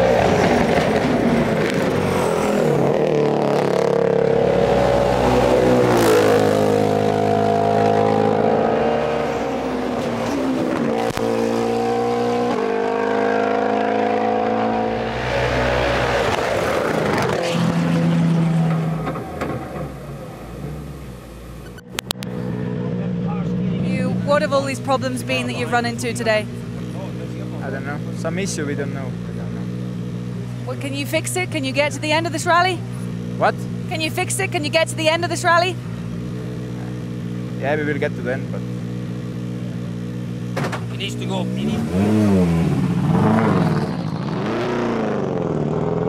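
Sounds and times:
rally car engine revving hard: 0:00.0 - 0:21.0, 0:36.2 - 0:46.0.

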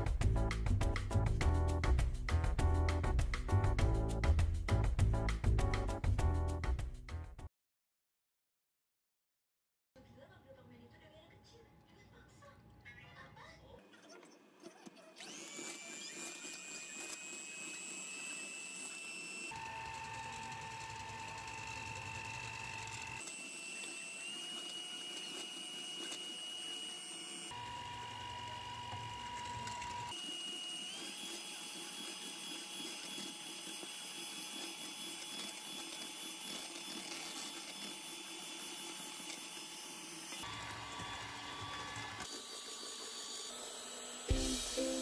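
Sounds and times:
electric hand mixer whining: 0:15.1 - 0:45.0.

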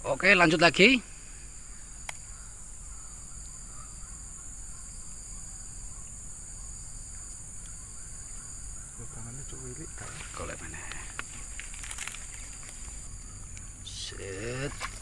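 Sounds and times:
insect chorus drone: 0:00.0 - 0:15.0
sharp click: 0:02.0 - 0:02.2.

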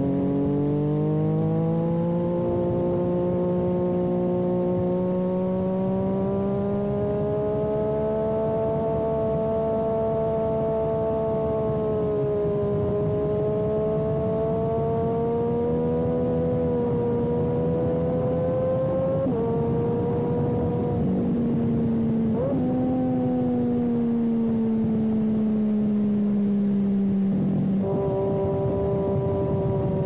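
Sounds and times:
motorcycle engine accelerating: 0:00.0 - 0:30.0
rush of wind noise: 0:08.4 - 0:30.0.

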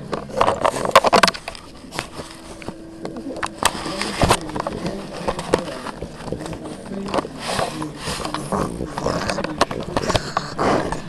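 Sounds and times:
clicks scrapes and rustles: 0:00.0 - 0:11.0
puppies scuffling and playing: 0:00.0 - 0:11.0.

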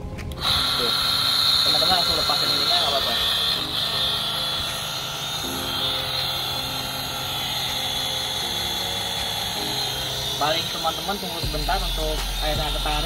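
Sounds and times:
pump motor high whine: 0:00.0 - 0:13.0.

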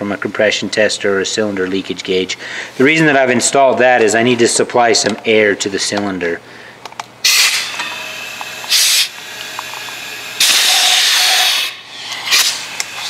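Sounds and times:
weak steady air hiss: 0:05.3 - 0:13.0
compressed air hissing in bursts: 0:07.2 - 0:13.0.

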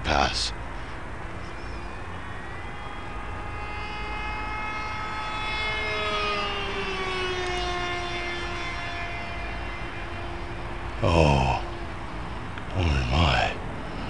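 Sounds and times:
model plane motor whining: 0:01.6 - 0:10.7.

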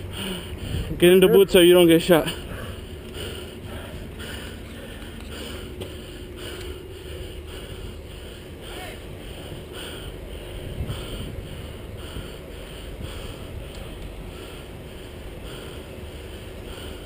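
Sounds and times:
person breathing: 0:00.0 - 0:01.0, 0:02.3 - 0:17.0
wind rumble on microphone: 0:00.0 - 0:01.2, 0:09.0 - 0:15.4.

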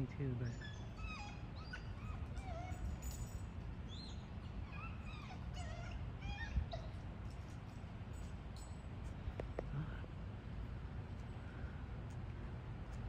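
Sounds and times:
dog whining: 0:00.4 - 0:03.3, 0:03.9 - 0:07.0.

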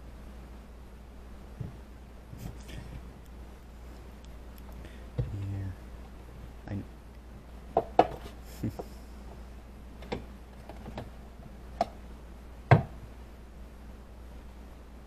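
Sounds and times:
faint low hum: 0:00.0 - 0:15.0
sharp clicks and knocks: 0:10.0 - 0:11.1, 0:11.8 - 0:12.0.

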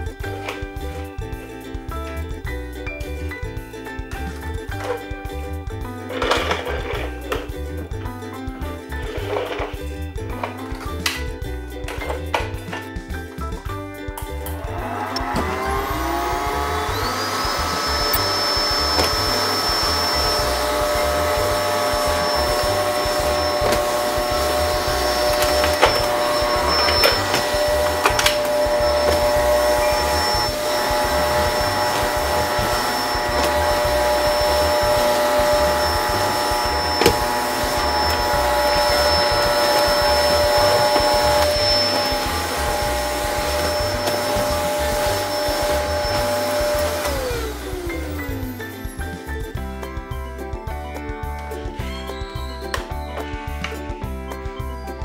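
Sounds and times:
toy vacuum motor whine: 0:14.6 - 0:49.0.

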